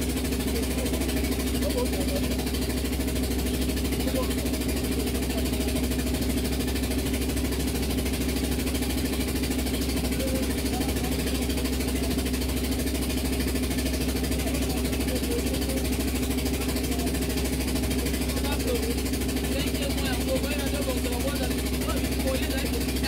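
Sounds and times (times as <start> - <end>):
boat engine droning: 0.0 - 23.0.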